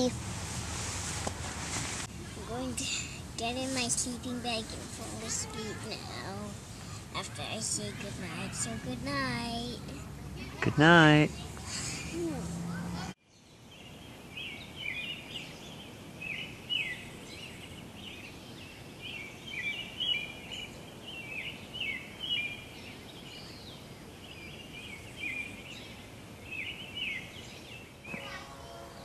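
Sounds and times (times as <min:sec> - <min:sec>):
steady background hiss: 0:00.0 - 0:12.7, 0:13.3 - 0:29.0
birds singing: 0:13.2 - 0:29.0.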